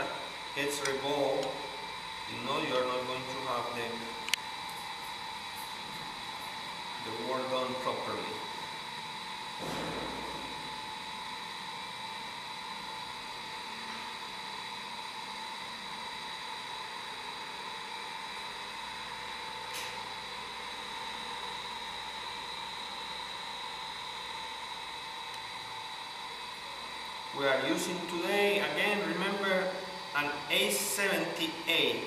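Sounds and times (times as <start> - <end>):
machine noise hiss: 0.0 - 11.5, 24.5 - 32.0
thin steady whining tones: 0.0 - 32.0.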